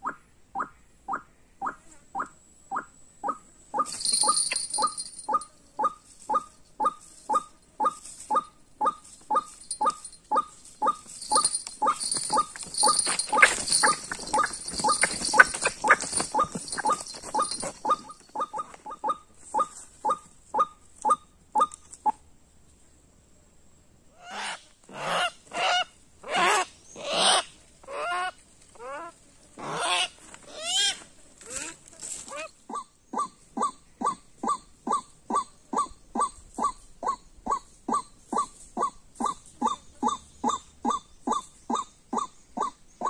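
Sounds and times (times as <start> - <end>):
waterhen clucking calls: 0.0 - 21.8
wings flapping: 10.9 - 18.7.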